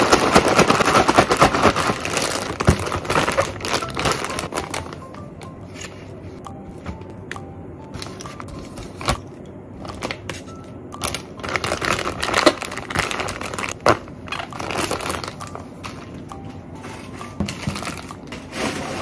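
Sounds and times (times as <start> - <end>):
plastic bags crinkling: 0.0 - 5.4, 11.0 - 16.2, 17.0 - 19.0.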